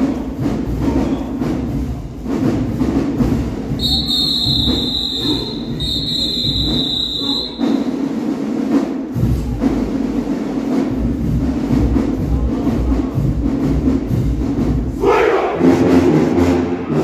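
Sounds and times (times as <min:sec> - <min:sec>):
whistle blasts: 0:03.7 - 0:08.0.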